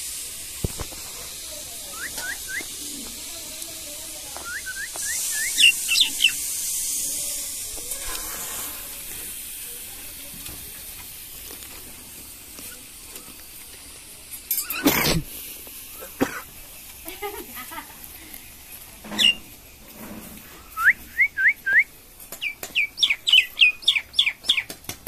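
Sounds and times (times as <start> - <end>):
steady hiss: 0.0 - 25.0
bird chirping: 4.4 - 6.4, 19.2 - 19.5, 22.4 - 24.7.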